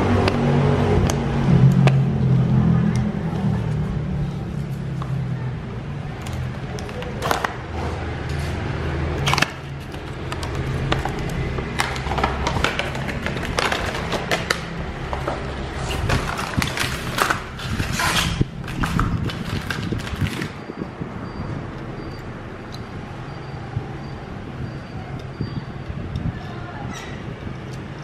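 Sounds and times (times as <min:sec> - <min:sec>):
plastic tray crinkling and clicking: 0:09.2 - 0:17.5.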